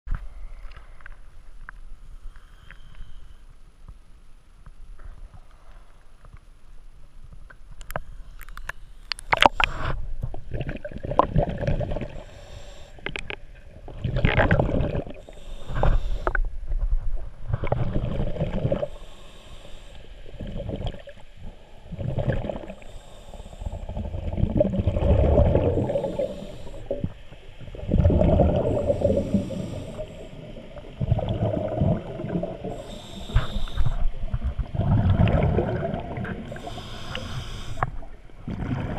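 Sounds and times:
regulator inhale hiss: 0:02.2 - 0:03.7, 0:12.1 - 0:13.3, 0:15.1 - 0:16.5, 0:18.8 - 0:20.5, 0:22.6 - 0:24.1, 0:25.6 - 0:27.7, 0:28.6 - 0:31.0, 0:32.4 - 0:34.4, 0:36.1 - 0:38.1
exhaust bubbles gushing: 0:23.8 - 0:32.8, 0:34.3 - 0:36.6
water splashing: 0:23.9 - 0:38.9.

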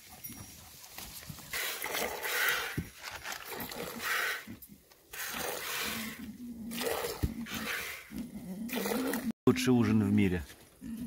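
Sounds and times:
animal grunting: 0:03.5 - 0:09.3.

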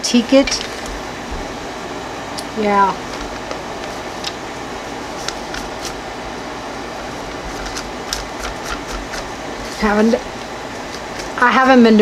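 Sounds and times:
background hiss and hum: 0:00.0 - 0:12.0
dauber tapping on paper: 0:07.5 - 0:09.3.

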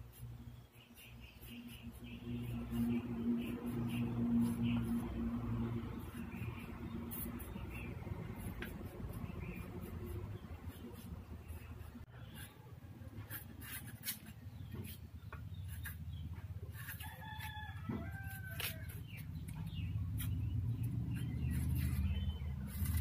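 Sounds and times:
steady low hum: 0:00.0 - 0:17.0
ginger scraping on iron blade: 0:21.2 - 0:23.0.

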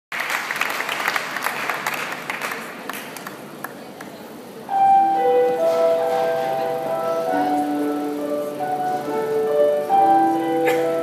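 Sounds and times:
audience applause: 0:00.1 - 0:03.4
music with long held notes: 0:04.7 - 0:11.0.

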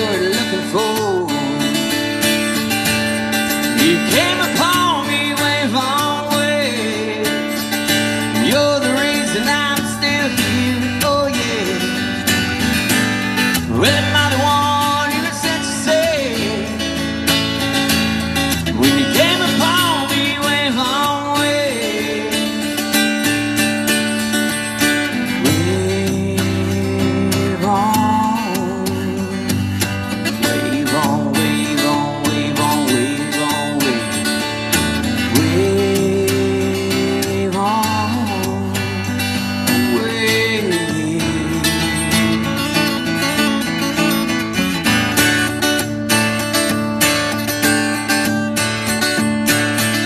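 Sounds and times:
acoustic guitar strumming chords: 0:00.0 - 0:50.0.

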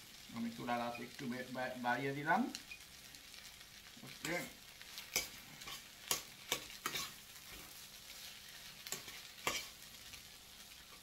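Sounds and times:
rice sizzling in a pan: 0:00.0 - 0:11.0
metal spatula scraping a pan: 0:04.1 - 0:11.0.

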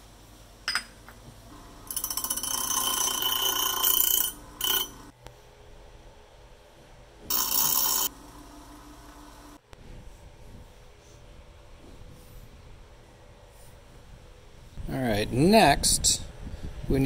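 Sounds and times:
metal grinding on abrasive wheel: 0:01.9 - 0:05.1, 0:07.3 - 0:08.1
grinder motor running: 0:07.3 - 0:08.2.

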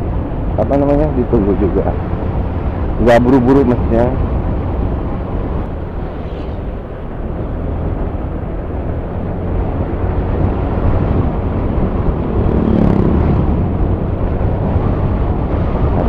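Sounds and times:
wind rushing past microphone: 0:00.0 - 0:16.0
motorcycle engine: 0:01.5 - 0:16.0.

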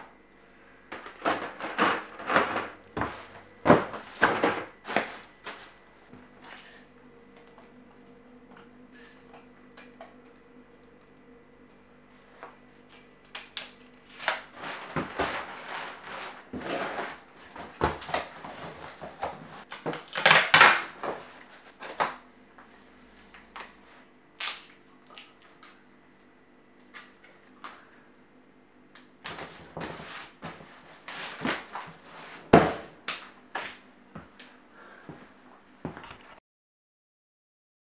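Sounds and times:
cardboard box scraping and rustling: 0:14.6 - 0:19.6.

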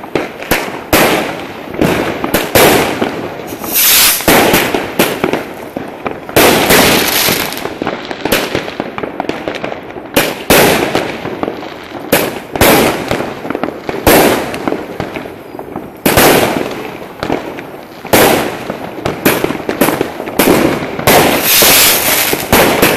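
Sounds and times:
fireworks bangs: 0:00.0 - 0:22.9.

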